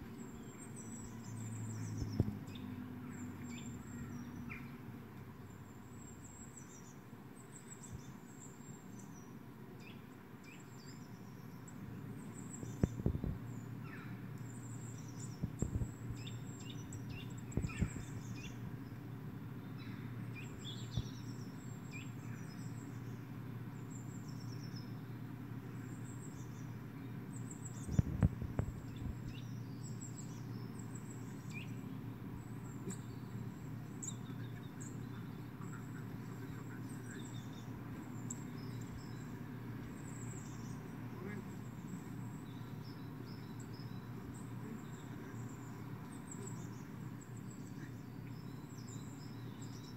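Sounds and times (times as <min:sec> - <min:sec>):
songbirds chirping through speakers: 0:00.0 - 0:49.9
steady low hum: 0:00.0 - 0:49.9.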